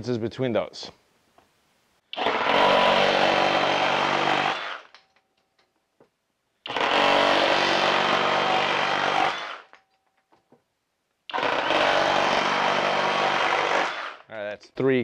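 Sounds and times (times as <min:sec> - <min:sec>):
reciprocating saw cutting wood: 0:02.2 - 0:04.9, 0:06.7 - 0:09.7, 0:11.3 - 0:14.2.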